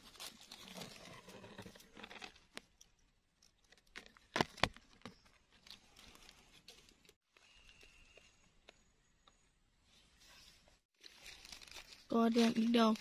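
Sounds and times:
rustling of dry leaves: 0.0s - 2.4s, 10.2s - 13.0s.

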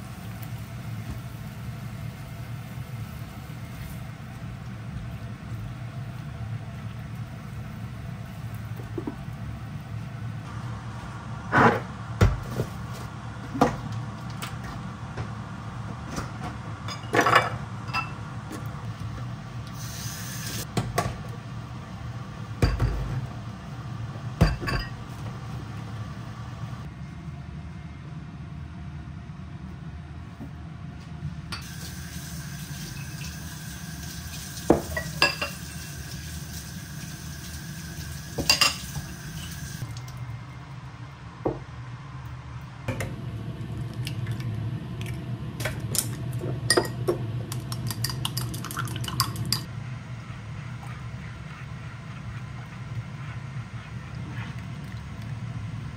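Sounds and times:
dishes clinking in a metal sink: 16.9s - 18.2s, 22.6s - 23.2s, 24.4s - 25.0s, 34.7s - 35.6s, 38.4s - 39.6s, 46.7s - 47.1s
tap running water: 31.6s - 39.8s.

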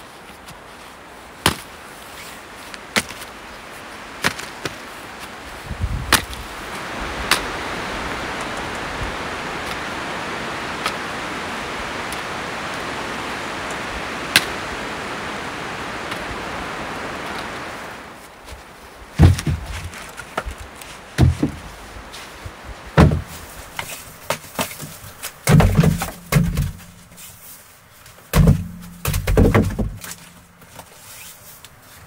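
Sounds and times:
axe splitting firewood: 1.4s - 1.7s, 2.9s - 3.3s, 6.0s - 6.5s, 14.3s - 14.6s, 19.2s - 20.5s, 21.2s - 21.7s, 23.0s - 27.1s, 28.3s - 30.9s.

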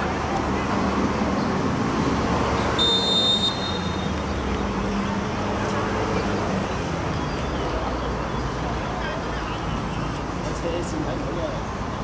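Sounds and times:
stadium background noise: 0.0s - 12.0s
referee's whistle blast: 2.8s - 4.1s.

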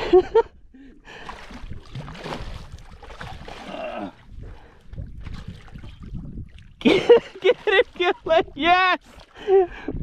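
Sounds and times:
fish thrashing and splashing water: 1.1s - 8.5s.

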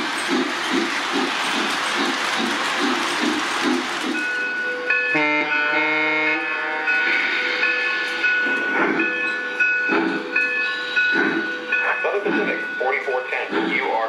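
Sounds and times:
steam chuffs: 0.0s - 14.0s
toy train chord whistle: 4.5s - 8.3s.

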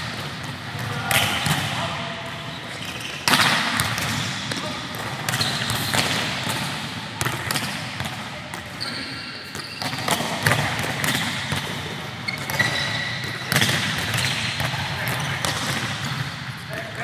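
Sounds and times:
sneaker squeaks: 2.3s - 3.5s, 5.3s - 6.1s, 8.6s - 11.3s, 12.2s - 15.5s
balls bouncing on hard floor: 3.1s - 8.9s, 9.5s - 16.3s.

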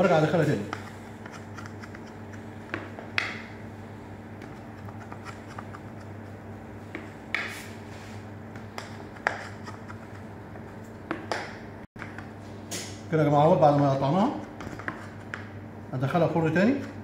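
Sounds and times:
steady low hum: 0.0s - 17.0s
knife scraping through crust: 0.7s - 2.4s, 4.5s - 6.4s, 9.1s - 10.3s.

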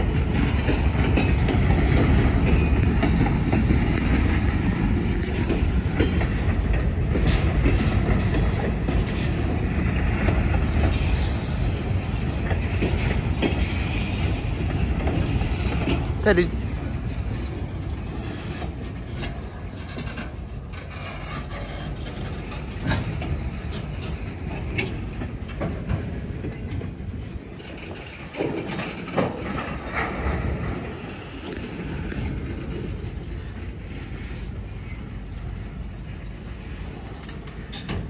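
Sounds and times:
train wheels rumbling on rails: 0.0s - 38.0s
freight car clanks: 18.6s - 34.2s, 34.8s - 38.0s.

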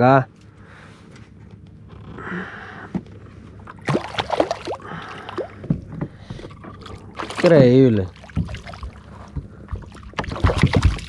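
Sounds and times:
water sloshing against kayak: 3.5s - 11.0s.

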